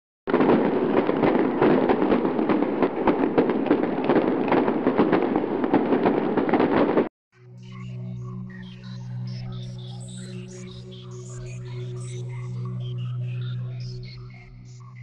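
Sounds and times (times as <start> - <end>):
crackling and popping: 0.3 - 7.1.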